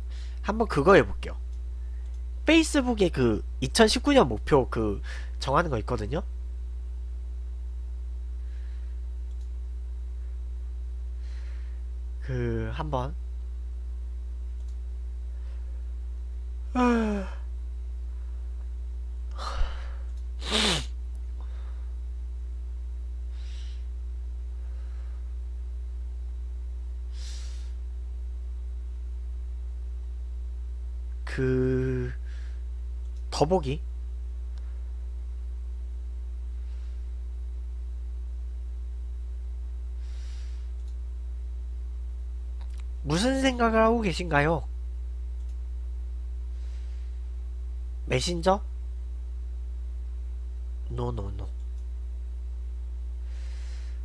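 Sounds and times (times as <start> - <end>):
steady low hum: 0.0 - 54.0
man sighing: 16.7 - 17.5, 19.3 - 20.8
man yawning: 16.7 - 17.5
faint breath or rustle: 40.0 - 40.8, 46.5 - 47.3, 53.2 - 54.0.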